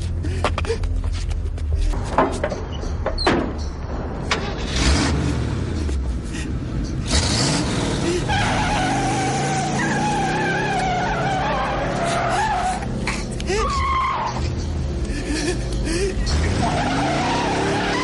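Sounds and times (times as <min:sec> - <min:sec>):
car engine revving hard: 0:07.1 - 0:10.5
tyres squealing in burnout: 0:07.1 - 0:14.7, 0:16.2 - 0:18.0.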